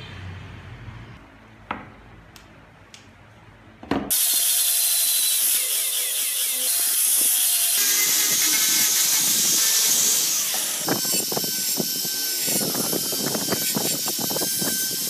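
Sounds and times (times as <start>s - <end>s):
power sander sanding wood: 4.1s - 15.0s.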